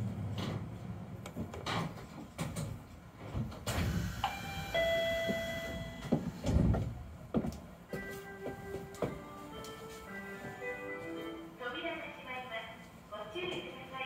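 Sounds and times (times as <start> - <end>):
air hissing: 3.7 - 6.7
two-note door chime: 4.3 - 6.1.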